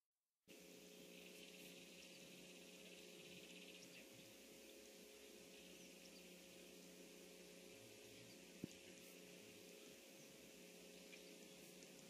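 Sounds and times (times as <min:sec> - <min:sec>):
faint steady hiss: 0:00.5 - 0:12.0
low hum: 0:00.5 - 0:12.0.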